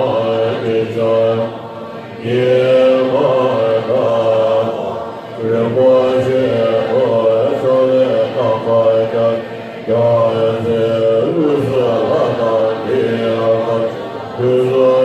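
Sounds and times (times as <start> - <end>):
monks chanting in unison: 0.0 - 15.0.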